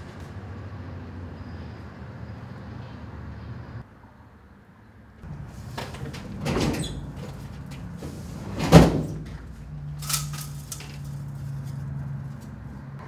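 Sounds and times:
office furniture knocks and clatter: 5.3 - 9.5
window blinds rattling: 5.3 - 11.9.

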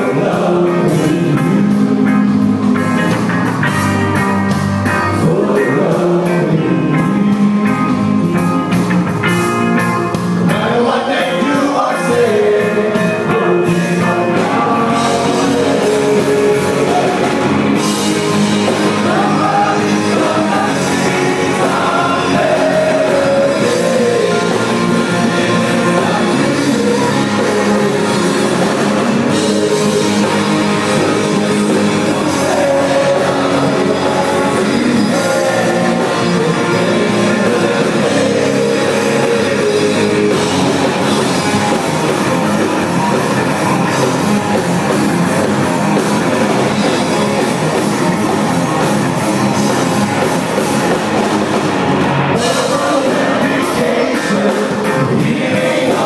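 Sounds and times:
man singing: 0.0 - 2.4, 5.0 - 8.2, 10.4 - 41.1, 52.3 - 56.0
live rock band playing: 0.0 - 56.0.

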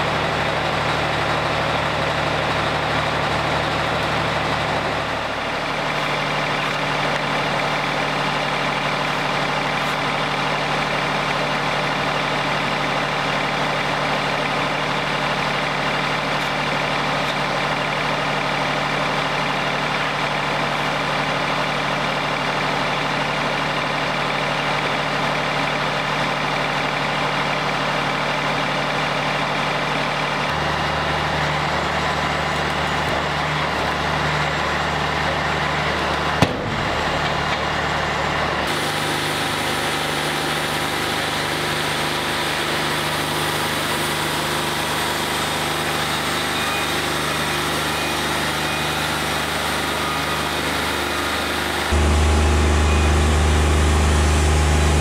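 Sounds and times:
diesel engine running: 0.0 - 55.0
band saw blade sawing log: 38.7 - 52.1.

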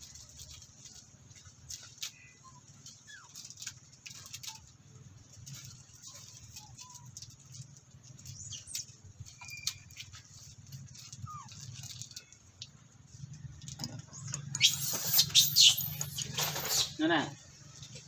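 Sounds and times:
light clicks and rustles: 0.0 - 17.0
high gliding chirps: 14.5 - 17.0.

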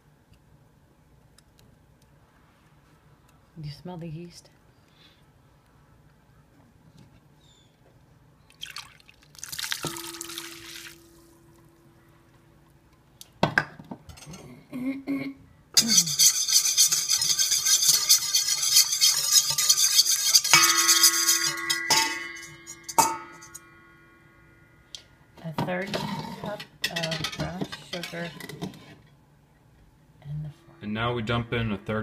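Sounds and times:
metal bowl ringing: 9.8 - 12.0, 15.8 - 24.9
whisk clattering in metal bowl: 15.8 - 23.6.

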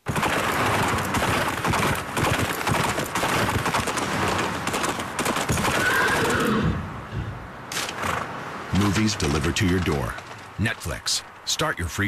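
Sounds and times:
rapid clattering impacts: 7.7 - 10.9.

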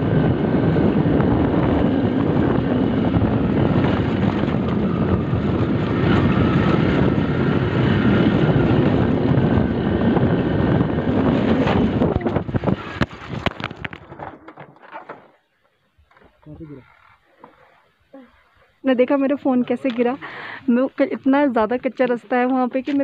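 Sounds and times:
wind buffeting microphone: 0.0 - 14.4
motorcycle engine: 0.0 - 15.3.

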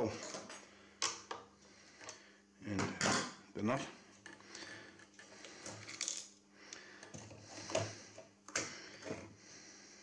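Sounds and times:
metal parts clicking and scraping: 5.0 - 6.4.

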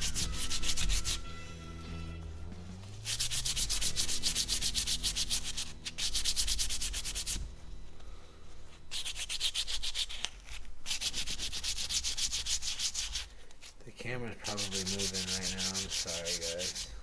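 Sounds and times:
sandpaper scratching metal: 0.0 - 1.3, 3.0 - 7.4, 8.9 - 13.3, 14.4 - 17.0.

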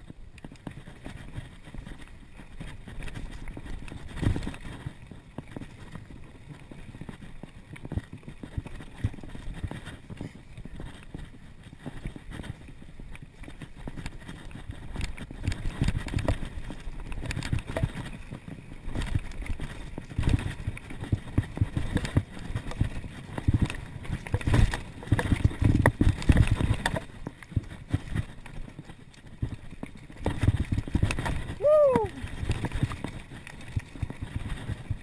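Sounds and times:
bike tyres rumbling over dirt: 0.0 - 35.0
bike frame rattling: 13.5 - 34.8.

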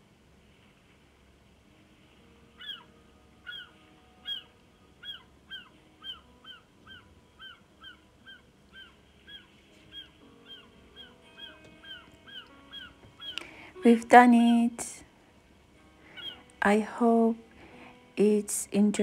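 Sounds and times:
animal calling: 2.5 - 13.6, 16.0 - 16.5.

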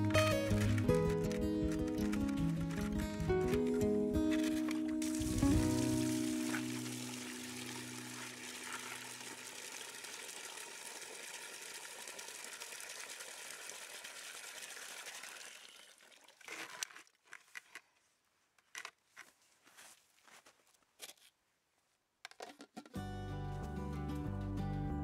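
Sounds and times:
water pouring into plastic container: 5.0 - 17.2.

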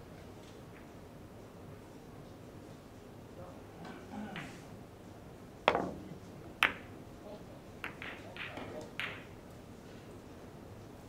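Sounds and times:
billiard balls clicking together: 5.7 - 6.9, 7.8 - 9.4
cue striking ball: 5.7 - 6.9, 7.8 - 9.4.

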